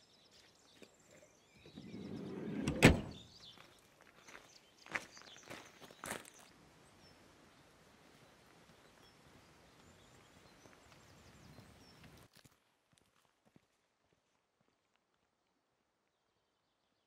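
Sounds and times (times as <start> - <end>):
footstep crunching on gravel: 3.6 - 6.5.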